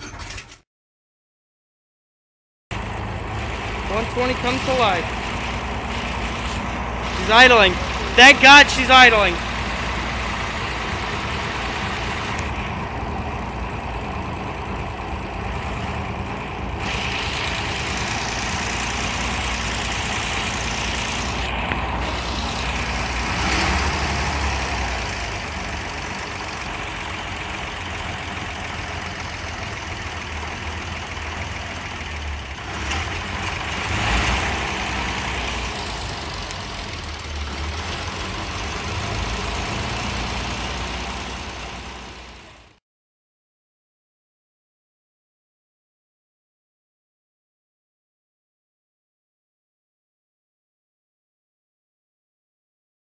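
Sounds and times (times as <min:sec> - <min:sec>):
railcar engine idling: 0:02.7 - 0:23.4, 0:24.3 - 0:33.7, 0:35.1 - 0:42.8.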